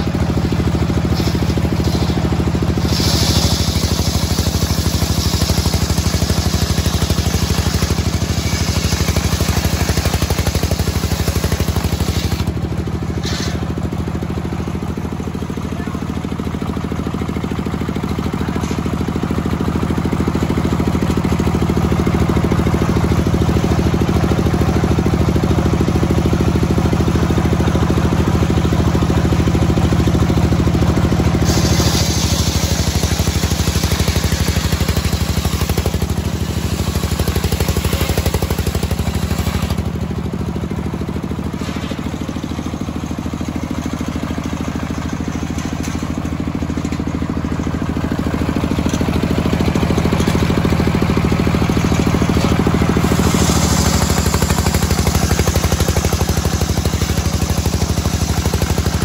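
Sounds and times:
saw blade cutting wood: 0:00.0 - 0:13.8, 0:31.3 - 0:39.9, 0:51.8 - 0:59.0
engine running: 0:00.0 - 0:59.0.

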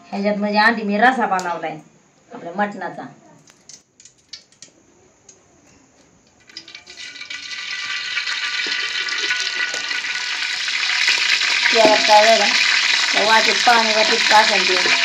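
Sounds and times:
oil sizzling in hot pot: 0:06.4 - 0:15.0.

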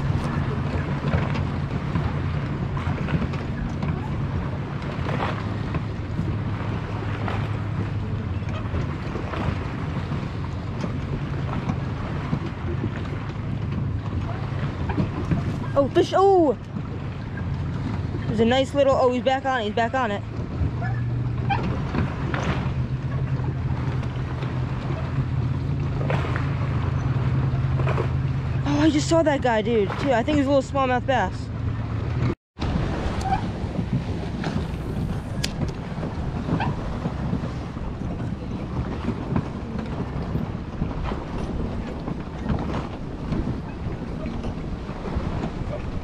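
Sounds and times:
wind buffeting microphone: 0:00.0 - 0:46.0
low mechanical hum: 0:31.0 - 0:46.0.

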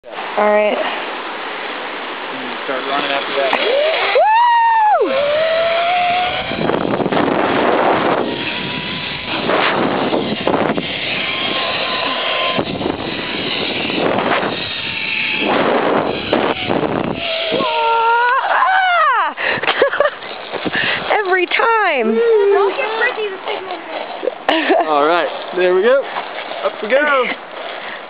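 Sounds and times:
wind rushing over microphone: 0:01.1 - 0:23.5
trolley whine on cable: 0:02.4 - 0:18.5.

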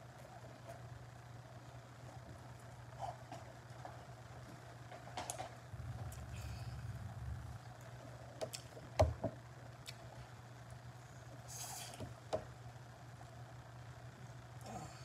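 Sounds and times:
low hum: 0:05.6 - 0:08.7.

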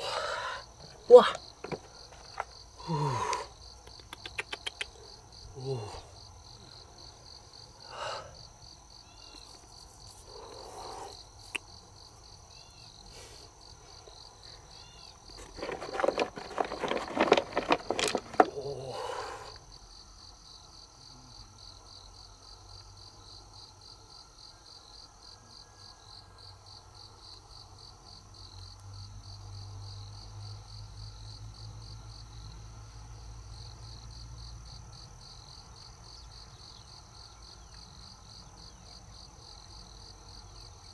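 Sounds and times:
insects trilling: 0:00.0 - 0:40.9
rustling and knocking: 0:01.6 - 0:02.6, 0:15.3 - 0:18.6.

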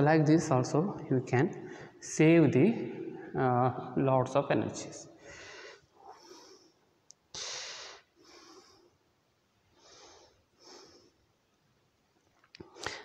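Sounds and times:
person breathing close: 0:05.2 - 0:09.0.

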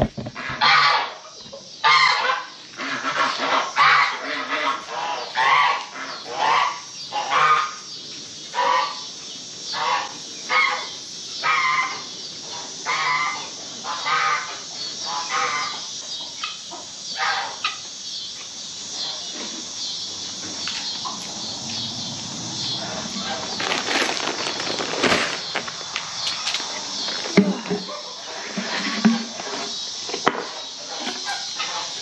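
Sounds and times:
geese honking: 0:00.4 - 0:01.2, 0:01.8 - 0:07.9, 0:08.5 - 0:09.1, 0:09.7 - 0:17.9, 0:18.8 - 0:32.0
steady rustling noise: 0:19.4 - 0:30.1.

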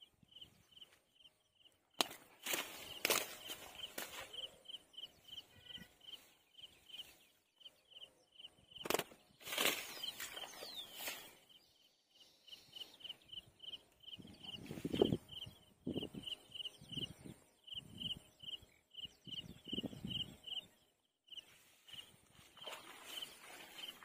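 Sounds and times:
insect chirping: 0:00.1 - 0:01.8, 0:02.8 - 0:08.9, 0:12.2 - 0:20.7.

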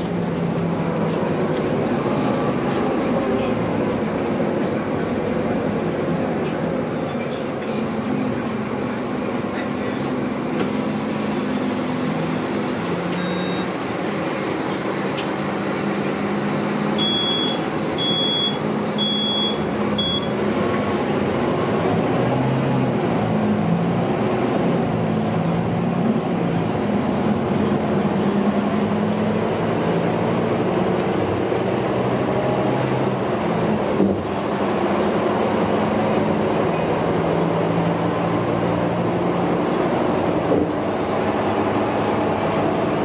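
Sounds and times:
bus diesel engine accelerating: 0:00.0 - 0:43.0
high electronic door warning beeps: 0:13.2 - 0:13.7, 0:17.0 - 0:20.3.

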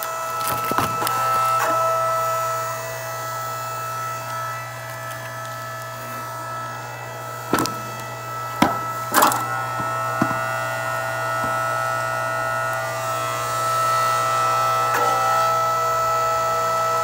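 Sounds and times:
wood cracking and splintering: 0:00.0 - 0:01.9, 0:07.4 - 0:10.6
log splitter motor humming: 0:00.0 - 0:17.0.

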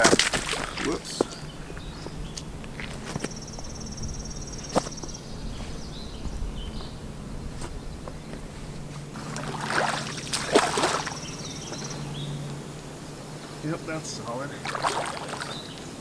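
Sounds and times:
branch knocking pond bottom: 0:00.0 - 0:01.0, 0:09.2 - 0:11.8, 0:14.6 - 0:15.6
water sloshing and splashing: 0:00.0 - 0:01.0, 0:09.2 - 0:11.3, 0:14.6 - 0:15.7.

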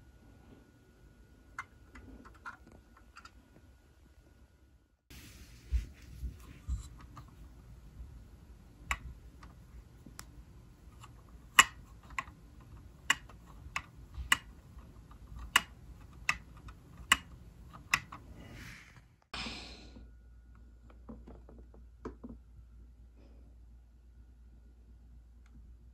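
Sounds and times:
soft rustle: 0:05.1 - 0:07.4
sharp plastic clicks: 0:10.9 - 0:18.2.

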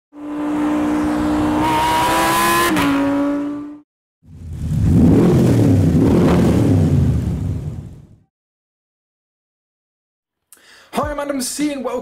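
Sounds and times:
high-revving engine whine: 0:00.1 - 0:08.0
deep rough engine note: 0:04.2 - 0:08.2.

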